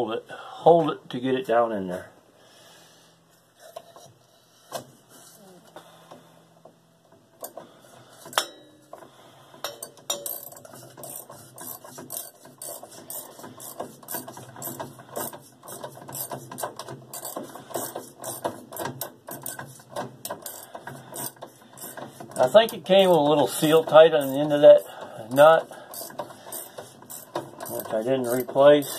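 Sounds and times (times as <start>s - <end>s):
socket ratchet clicking: 25.9s - 28.9s.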